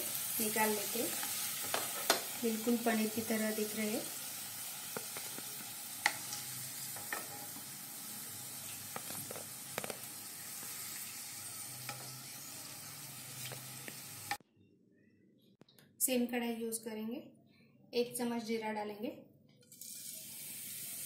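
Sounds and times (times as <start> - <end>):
hot oil sizzling: 0.0 - 14.4, 19.8 - 21.0.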